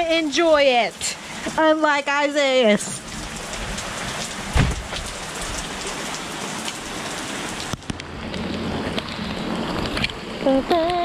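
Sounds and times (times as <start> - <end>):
heavy rain pouring: 0.0 - 11.0
low thump: 4.5 - 5.1.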